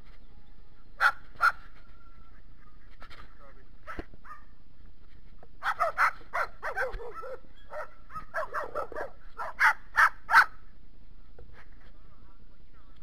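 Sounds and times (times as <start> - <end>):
dogs barking: 1.0 - 1.7, 3.8 - 4.5, 5.6 - 10.6.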